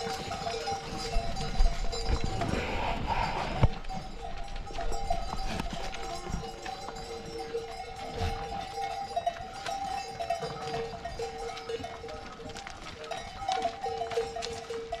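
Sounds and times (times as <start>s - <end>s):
animal bells clinking: 0.0s - 15.0s
sheep and goats moving: 0.0s - 15.0s.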